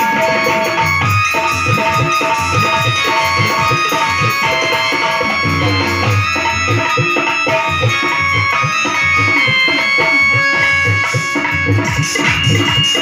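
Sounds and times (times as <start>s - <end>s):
drum beat: 0.0s - 13.0s
electronic keyboard melody: 0.0s - 13.0s.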